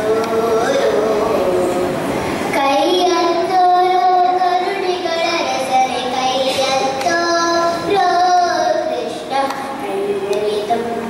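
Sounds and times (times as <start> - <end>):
girl singing into a microphone: 0.0 - 11.0.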